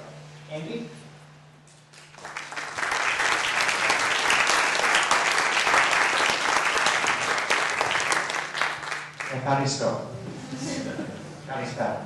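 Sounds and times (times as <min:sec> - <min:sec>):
audience applauding: 0:02.0 - 0:09.5.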